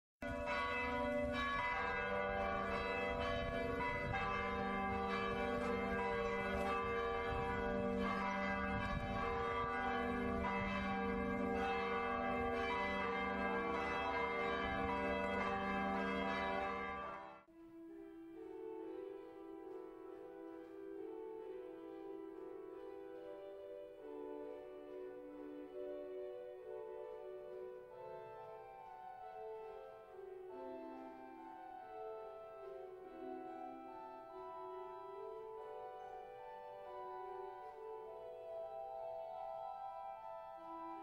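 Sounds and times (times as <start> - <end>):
church bells ringing: 0.2 - 17.5, 18.5 - 41.0
quiet sustained music: 17.4 - 41.0.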